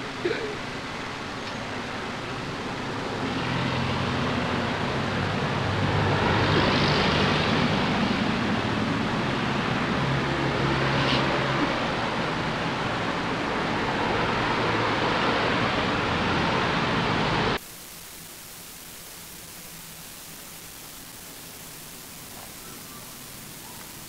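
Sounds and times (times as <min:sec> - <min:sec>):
passing vehicle engine and tyres: 0:00.0 - 0:17.6.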